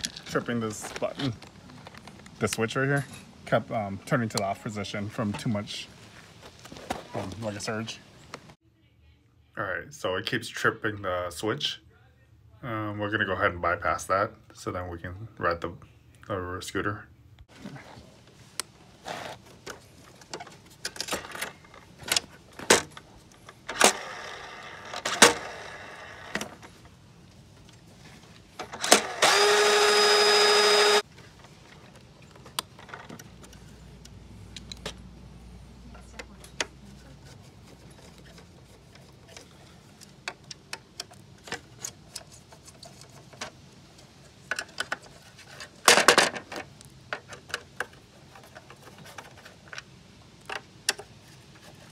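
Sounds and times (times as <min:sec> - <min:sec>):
small electric motor whining: 0:23.8 - 0:26.4, 0:28.8 - 0:31.1.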